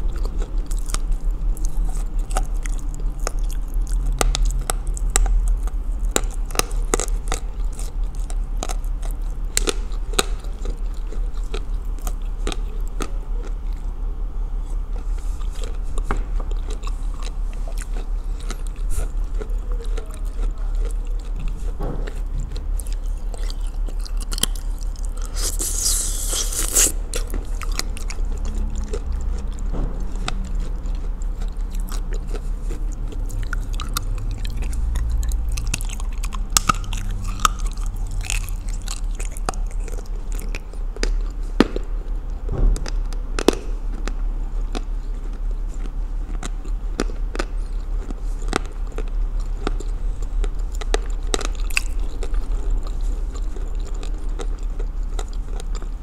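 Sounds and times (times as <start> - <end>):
chewing with crisp crunches: 0.0 - 56.0
short hissing scrape: 25.3 - 27.0.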